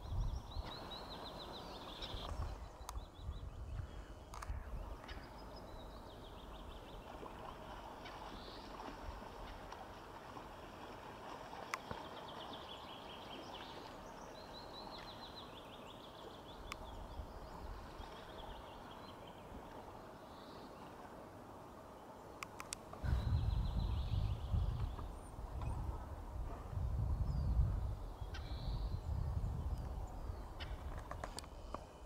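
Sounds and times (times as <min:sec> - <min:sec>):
low wind rumble: 0:00.0 - 0:09.6, 0:23.0 - 0:32.0.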